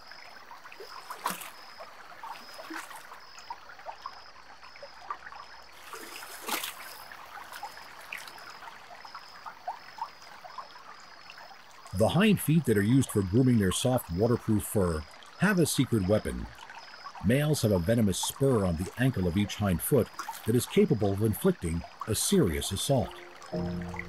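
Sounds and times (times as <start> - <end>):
river water trickling and bubbling: 0.0 - 24.0
water splashes: 0.0 - 24.0
faint high-pitched pulse: 23.0 - 24.0.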